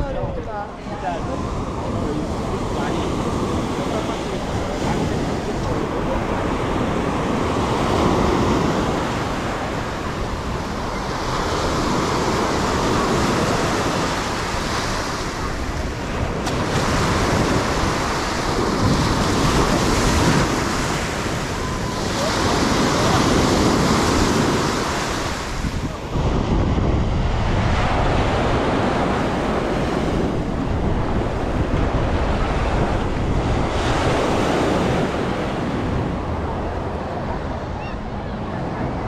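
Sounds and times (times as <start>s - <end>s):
waves breaking on sandy beach: 0.0s - 39.0s.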